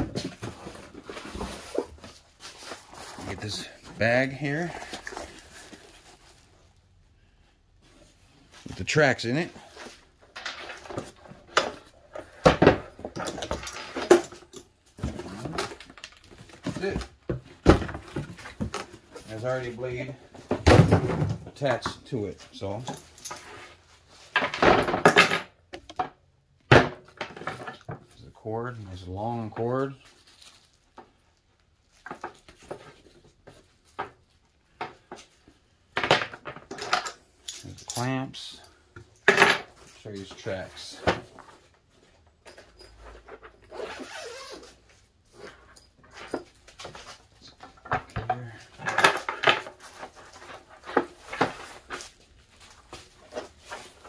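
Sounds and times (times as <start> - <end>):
metal clamps clinking: 36.7 - 40.4.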